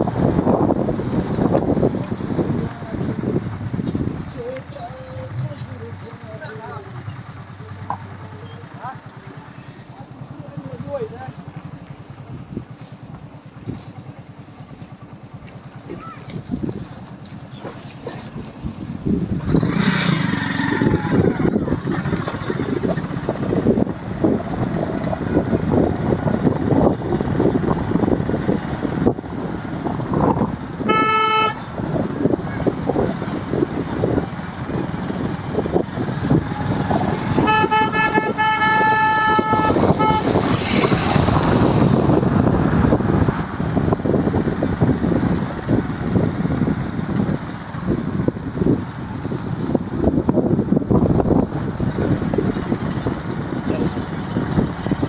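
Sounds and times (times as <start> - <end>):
motorbike road and wind noise: 0.0 - 55.0
vehicle horn: 30.8 - 31.8, 37.0 - 40.9.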